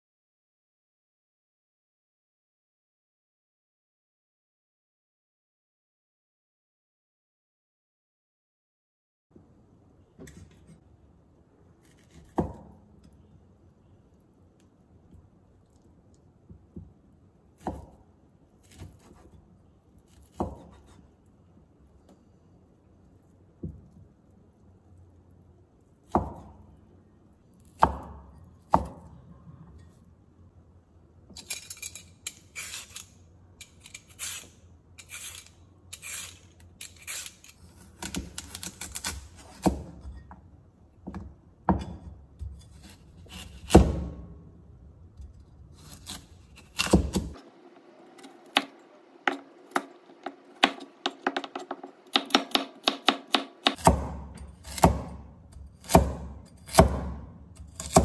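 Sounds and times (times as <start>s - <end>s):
cleaver chopping on wooden board: 49.3s - 55.2s, 55.8s - 57.2s.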